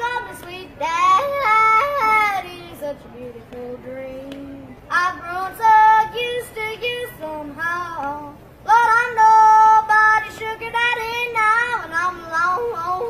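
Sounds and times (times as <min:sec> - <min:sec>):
boy yodeling: 0:05.1 - 0:13.0.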